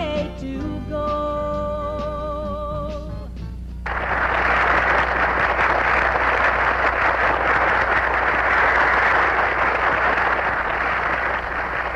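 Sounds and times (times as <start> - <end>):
steady low hum: 1.6 - 11.9
audience applauding: 3.9 - 11.9.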